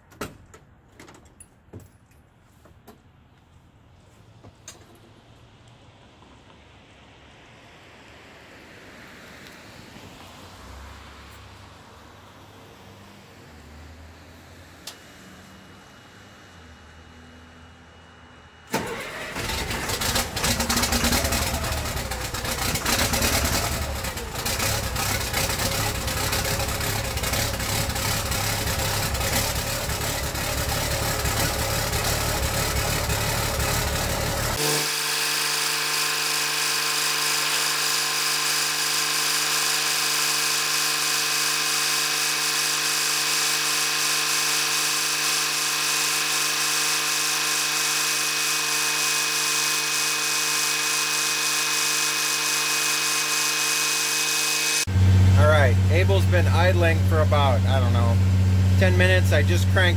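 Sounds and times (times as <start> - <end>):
diesel engine starting and running: 4.5 - 59.9
engine idle hum with hiss: 54.8 - 59.9.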